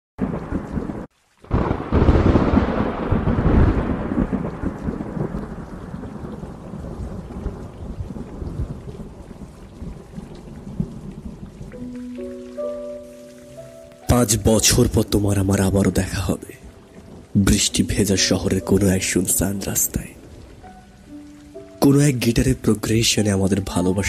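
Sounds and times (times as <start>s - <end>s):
thunder rumbling: 0.2s - 11.9s
steady rain: 0.2s - 24.0s.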